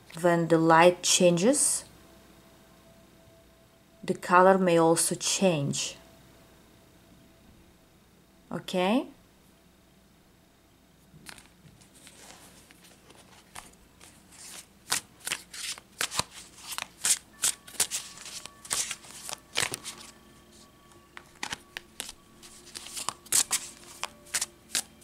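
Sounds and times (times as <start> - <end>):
cards being shuffled: 11.2 - 25.0.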